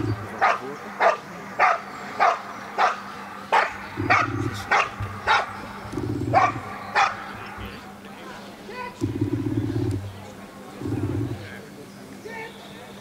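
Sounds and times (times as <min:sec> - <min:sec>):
dog barking: 0:00.3 - 0:05.7, 0:06.3 - 0:07.5.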